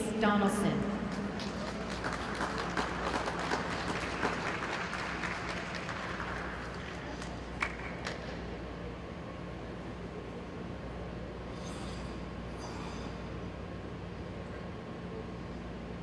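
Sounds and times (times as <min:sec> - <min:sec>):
steady low hum: 0:00.0 - 0:16.0
crowd applause: 0:01.1 - 0:08.4.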